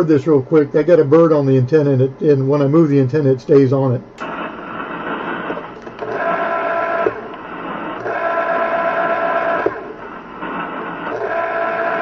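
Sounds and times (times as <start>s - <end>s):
constant hiss: 0.0s - 11.8s
antenna rotor whining hum: 4.2s - 12.0s.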